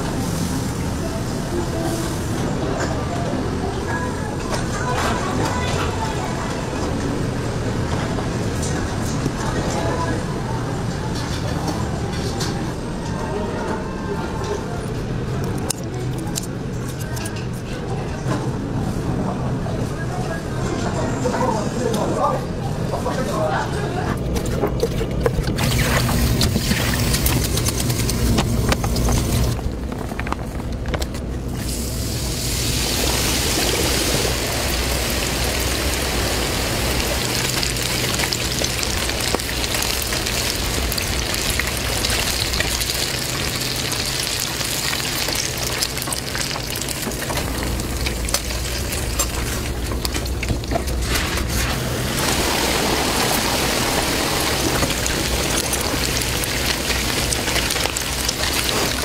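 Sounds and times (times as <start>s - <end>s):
oil sizzling in deep fryer: 25.6s - 29.6s, 31.6s - 59.0s.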